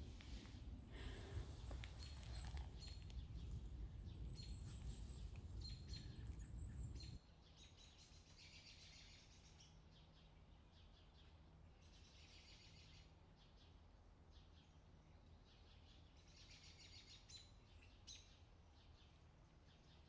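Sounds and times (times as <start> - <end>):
low rumble: 0.0 - 7.2
small birds chirping: 0.0 - 20.0.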